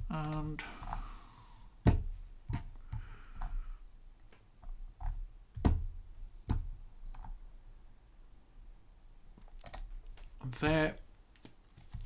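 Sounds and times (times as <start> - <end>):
computer mouse clicking: 7.1 - 7.4, 9.4 - 10.3.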